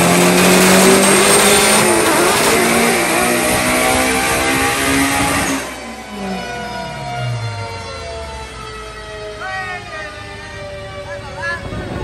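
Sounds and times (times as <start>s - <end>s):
car engine running: 0.0s - 8.0s.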